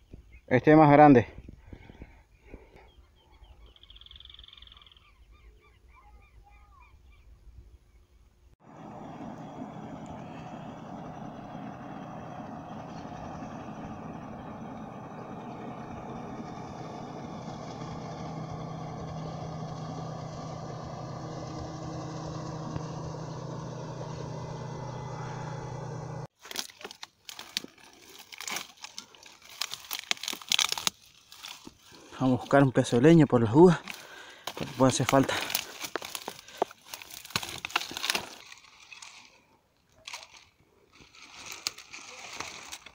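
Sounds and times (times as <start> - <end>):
motorboat engine humming: 8.6 - 26.3
dry brush and twigs crunching: 26.3 - 42.9.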